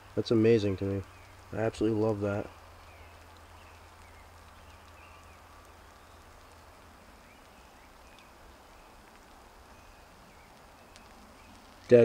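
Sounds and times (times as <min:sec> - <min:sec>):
low steady background hum: 0:00.0 - 0:12.0
bird chirps: 0:01.0 - 0:01.5, 0:02.4 - 0:11.9
soft ticks: 0:02.8 - 0:08.3, 0:08.9 - 0:09.4, 0:10.4 - 0:12.0.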